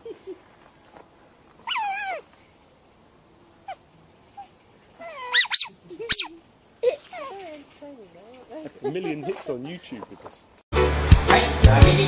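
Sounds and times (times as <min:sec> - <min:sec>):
otters squealing: 0:04.4 - 0:07.6.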